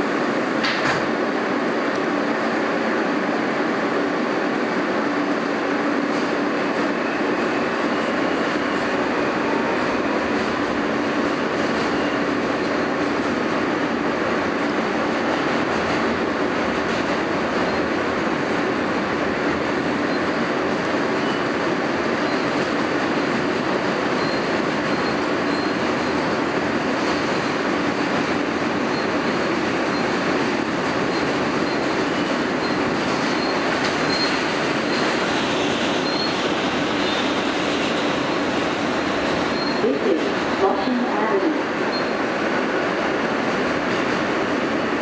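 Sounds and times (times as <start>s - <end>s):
train wheels rumbling on rails: 0.0s - 45.0s
wheel squeals: 31.0s - 37.4s, 39.5s - 39.8s.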